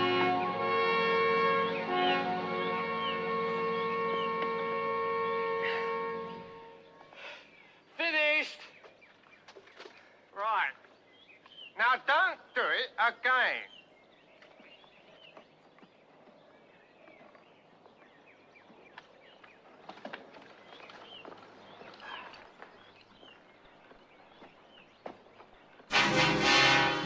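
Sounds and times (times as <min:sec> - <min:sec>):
bird chirps: 0:10.7 - 0:12.7
loud music: 0:25.9 - 0:27.0.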